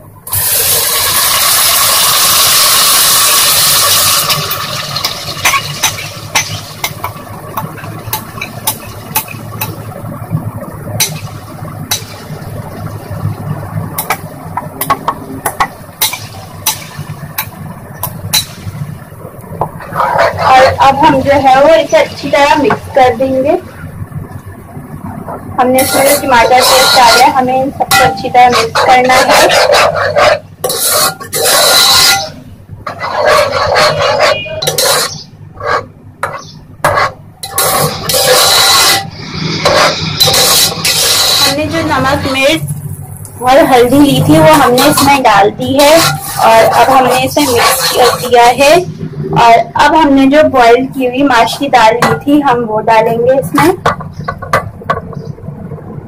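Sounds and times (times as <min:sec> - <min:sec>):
low steady hum: 0:03.8 - 0:56.0
metal spoon knocking and scraping bowl: 0:25.8 - 0:27.3, 0:27.9 - 0:41.8, 0:44.3 - 0:48.4.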